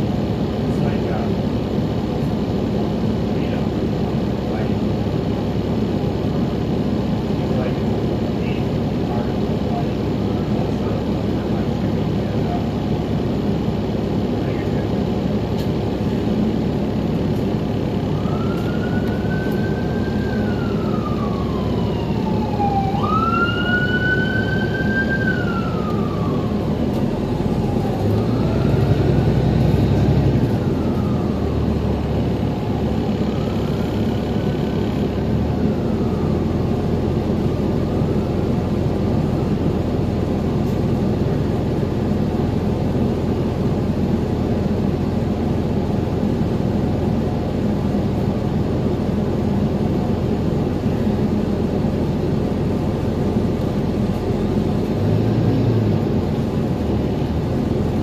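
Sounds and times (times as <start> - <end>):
bus running noise: 0.0 - 58.0
emergency siren wailing: 17.8 - 41.4.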